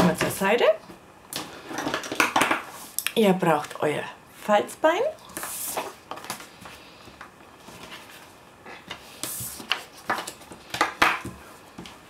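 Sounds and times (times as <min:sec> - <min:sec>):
paper rustling and sliding: 0:07.6 - 0:10.8.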